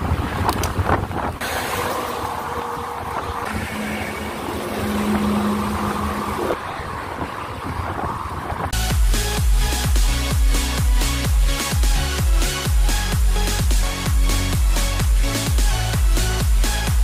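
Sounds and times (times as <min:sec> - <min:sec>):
wind on microphone: 0:00.0 - 0:11.0
highway traffic passing: 0:00.0 - 0:11.2
low drone: 0:01.4 - 0:17.0.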